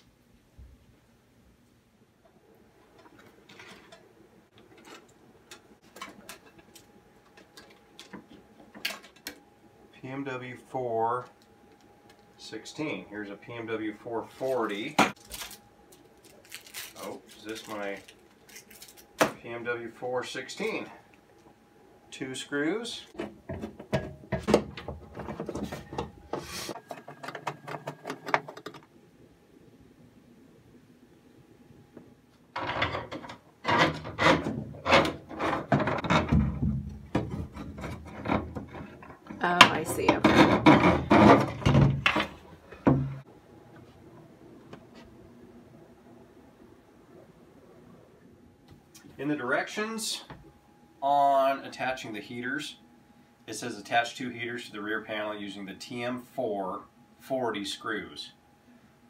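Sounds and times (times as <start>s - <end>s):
clicks and rustles of handling: 2.8s - 9.5s, 14.3s - 19.4s
cables and small parts rattling: 2.8s - 10.1s, 14.3s - 19.5s, 32.3s - 42.8s.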